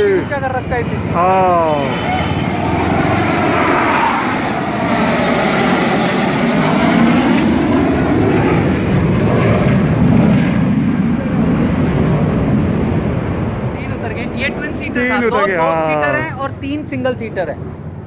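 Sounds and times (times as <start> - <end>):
jet engine roar passing overhead: 0.0 - 18.0.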